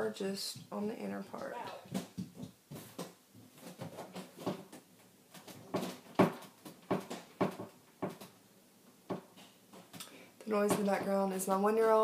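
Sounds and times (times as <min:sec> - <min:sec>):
knocks and thumps on door: 0:05.7 - 0:08.2.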